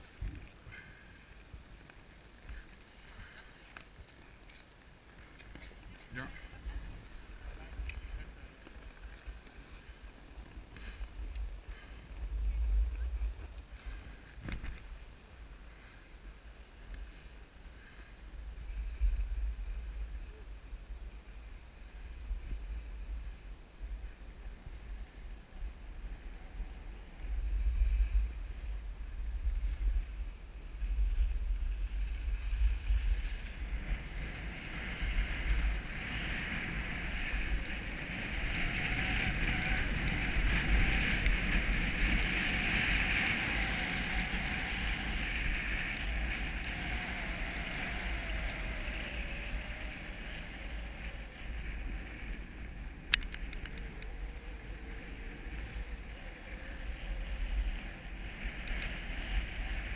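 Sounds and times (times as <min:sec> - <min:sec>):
skis scraping over snow: 0:00.0 - 0:59.9
wind buffeting microphone: 0:17.8 - 0:59.9.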